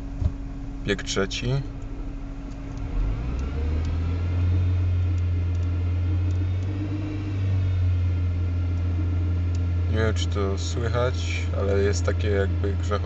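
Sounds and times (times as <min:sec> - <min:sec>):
gearbox humming and rattling: 0:00.0 - 0:13.0
car engine accelerating: 0:01.6 - 0:13.0.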